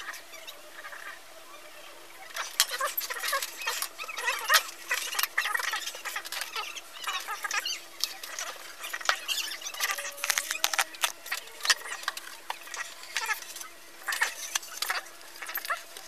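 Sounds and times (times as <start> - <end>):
faint steady hum: 0.0 - 16.0
paper rustling and pen scratching: 2.4 - 16.0.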